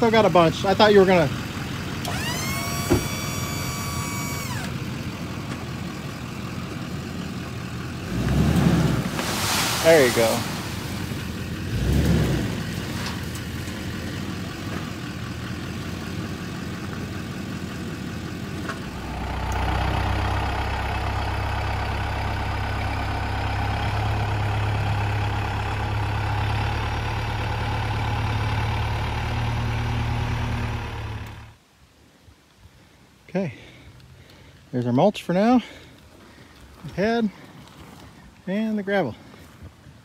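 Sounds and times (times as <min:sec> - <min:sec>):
tractor diesel engine running: 0:00.0 - 0:31.6
truck engine running: 0:00.0 - 0:31.6
mulch unloading from truck bed: 0:08.4 - 0:13.9.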